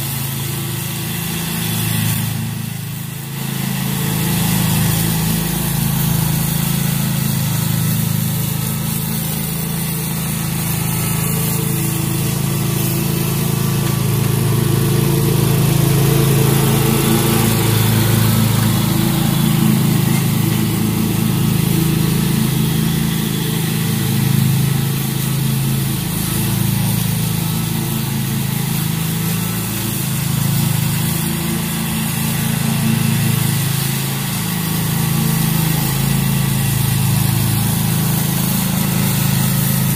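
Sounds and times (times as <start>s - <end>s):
lawn mower engine running: 0.0s - 39.9s.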